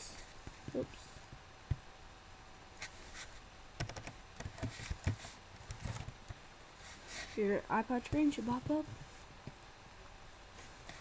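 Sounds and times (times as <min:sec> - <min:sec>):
typing on computer keyboard: 0:03.8 - 0:06.2.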